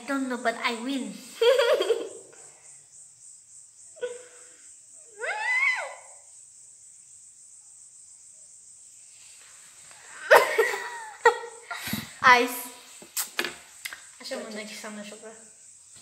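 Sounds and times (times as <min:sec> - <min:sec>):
children talking and laughing: 0:00.0 - 0:02.6, 0:10.0 - 0:15.4
high-pitched hiss: 0:00.0 - 0:16.0
child squealing: 0:05.1 - 0:06.2.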